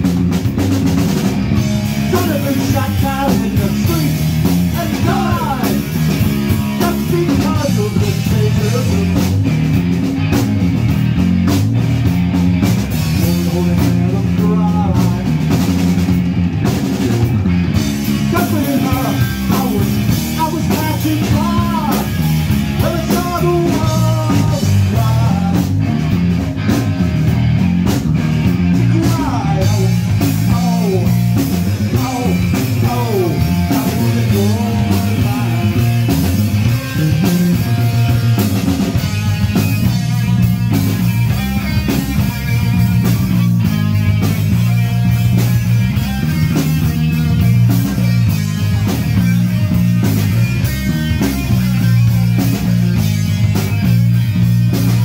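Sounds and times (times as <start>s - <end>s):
punk rock band playing: 0.0s - 55.0s
person singing: 2.1s - 6.0s, 6.6s - 9.4s, 13.1s - 15.4s, 18.3s - 25.8s, 28.8s - 37.8s.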